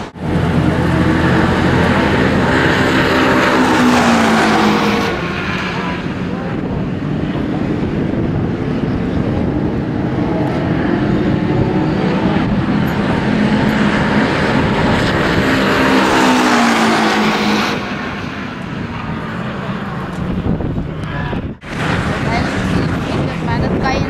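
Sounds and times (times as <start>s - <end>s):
racing car engines running: 0.0s - 24.0s.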